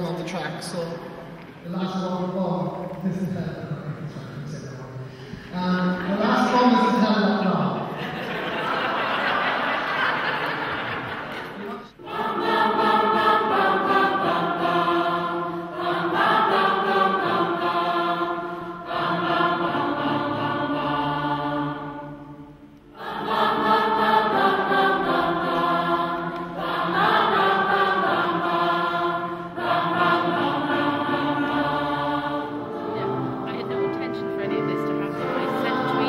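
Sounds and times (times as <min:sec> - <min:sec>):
mixed choir singing slow song: 0:06.1 - 0:33.7, 0:35.1 - 0:36.0.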